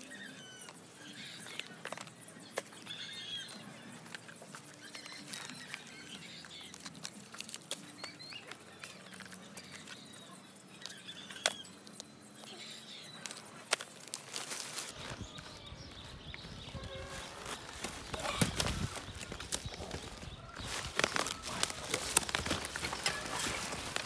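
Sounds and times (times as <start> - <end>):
faint chirps: 0.0 - 24.0
cardboard boxes being handled: 13.2 - 24.0.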